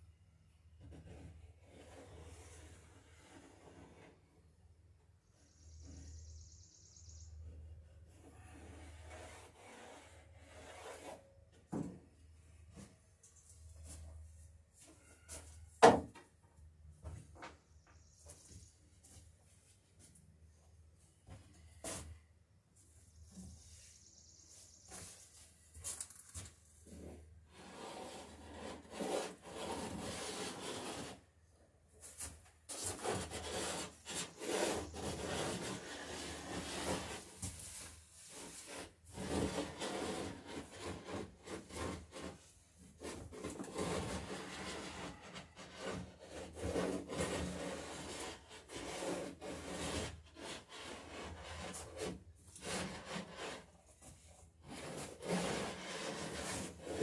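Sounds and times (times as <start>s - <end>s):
hand tool shaving wood: 27.6s - 31.2s, 32.7s - 37.4s, 38.3s - 42.4s, 43.0s - 53.7s, 54.6s - 57.0s.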